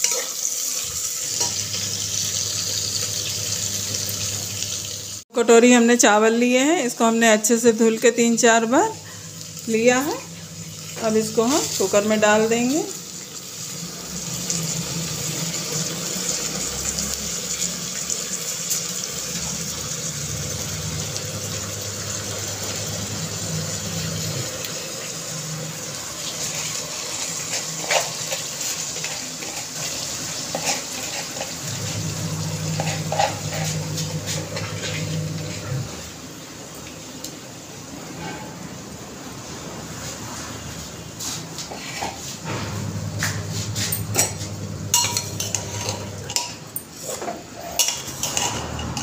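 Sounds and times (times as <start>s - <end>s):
rice sizzling in hot fat: 0.0s - 5.2s, 9.0s - 37.8s
spoon scraping and knocking pot: 27.4s - 35.8s, 43.2s - 49.0s.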